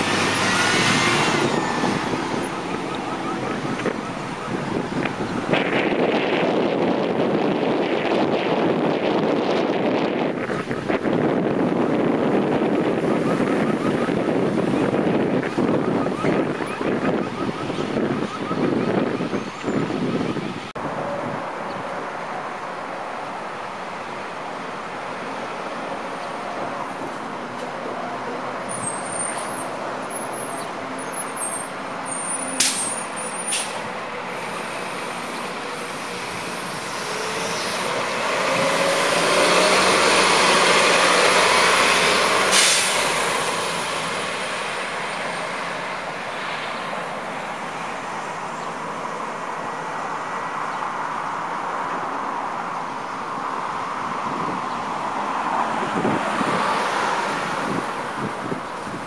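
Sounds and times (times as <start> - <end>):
bus driving past: 0.0 - 7.4, 20.4 - 59.0
traffic hum: 0.0 - 59.0
air brake hisses: 32.6 - 33.8, 42.5 - 43.1.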